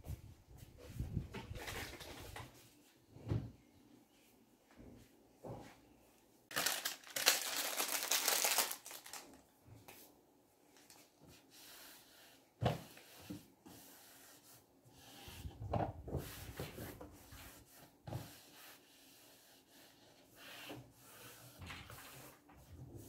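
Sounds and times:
cloth wiping wood: 0:11.4 - 0:15.5, 0:16.2 - 0:23.0.

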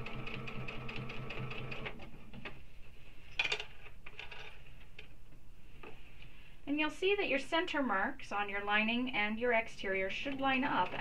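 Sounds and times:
sewing machine running: 0:00.0 - 0:02.0.

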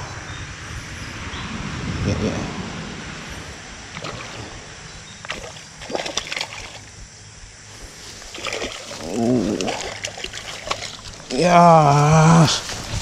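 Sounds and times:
fish splashing in water: 0:03.9 - 0:06.9, 0:08.3 - 0:11.4
wordless vocal exclamation: 0:11.3 - 0:12.7.

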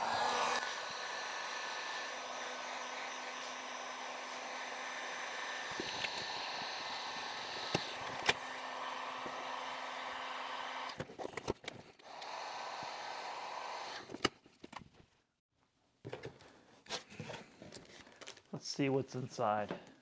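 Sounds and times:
heat gun blowing: 0:00.0 - 0:11.0, 0:12.0 - 0:14.2.

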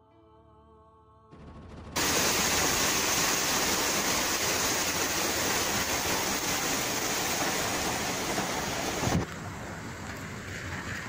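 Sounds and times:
floodwater rushing: 0:02.0 - 0:09.6.

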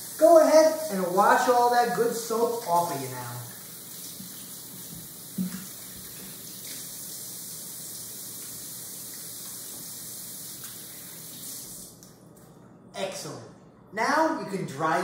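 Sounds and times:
faucet running into sink: 0:02.8 - 0:11.8.

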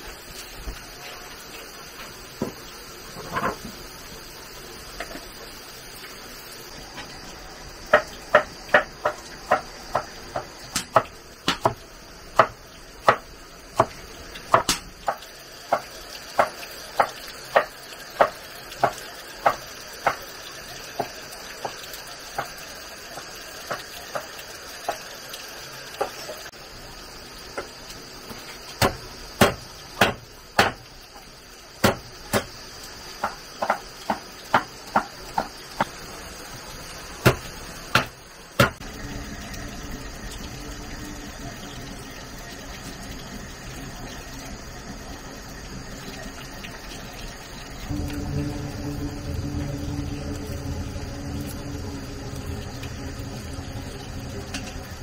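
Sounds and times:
pan simmering: 0:00.0 - 0:55.0
cleaver chopping on wooden block: 0:14.6 - 0:15.2.

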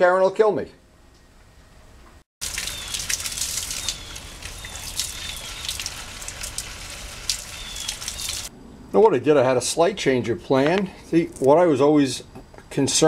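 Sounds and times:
gasoline pouring into funnel: 0:02.4 - 0:08.5
birds chirping: 0:02.6 - 0:08.5.

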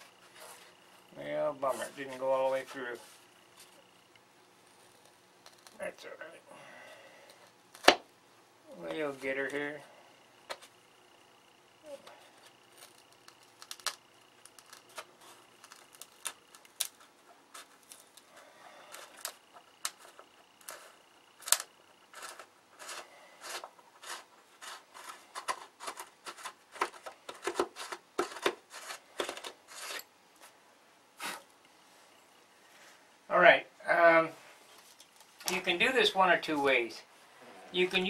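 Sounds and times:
hand tool clicking and crunching wood: 0:12.0 - 0:30.1.

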